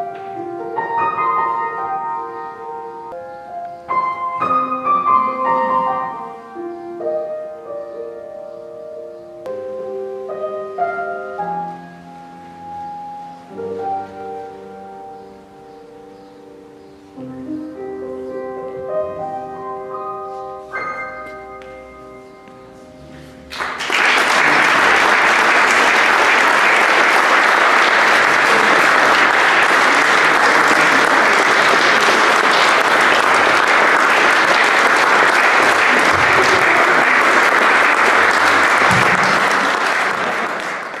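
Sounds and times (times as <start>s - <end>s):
piano chord ringing: 0.0s - 23.6s
audience applause: 23.5s - 41.0s.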